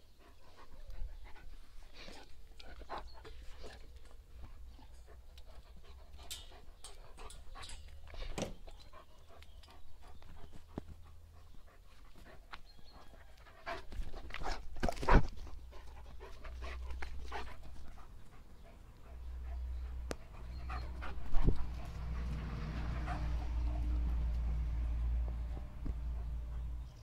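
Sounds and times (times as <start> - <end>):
dog panting: 0.0 - 27.0.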